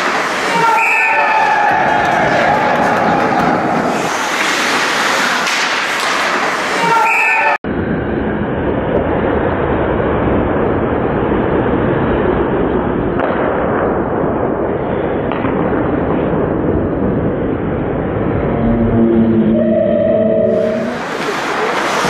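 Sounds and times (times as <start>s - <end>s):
ice rink hockey game noise: 0.0s - 22.0s
held pitched tone: 18.4s - 21.2s.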